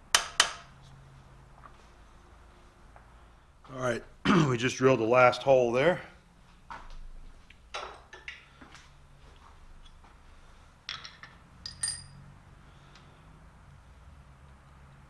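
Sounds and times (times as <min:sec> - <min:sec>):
light metallic clinks: 0:10.9 - 0:12.3.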